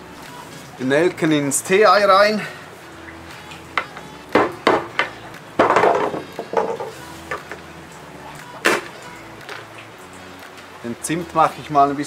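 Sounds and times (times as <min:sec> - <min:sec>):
loud knock on table: 0:04.4 - 0:06.9.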